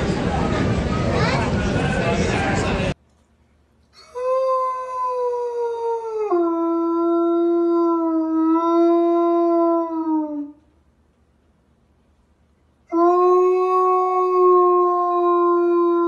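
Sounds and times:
large dog howling: 12.9s - 16.0s.

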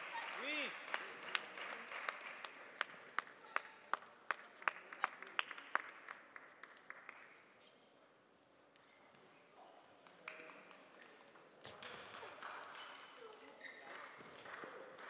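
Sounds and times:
light applause: 0.0s - 7.5s.

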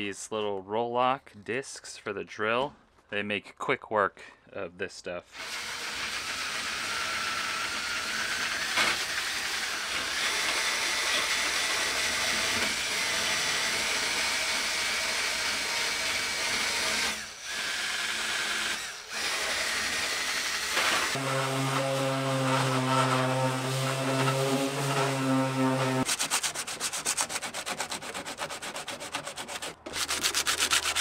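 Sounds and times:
drill grinding metal: 5.4s - 26.1s.

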